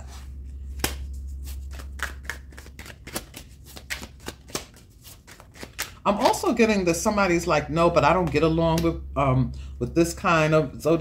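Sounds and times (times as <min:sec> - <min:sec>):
cards being shuffled: 0:00.0 - 0:06.5.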